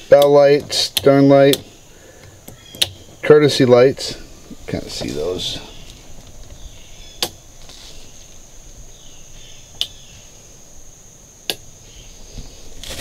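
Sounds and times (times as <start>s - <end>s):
steady high-pitched whine: 0.0s - 13.0s
sharp clicks: 0.1s - 3.0s.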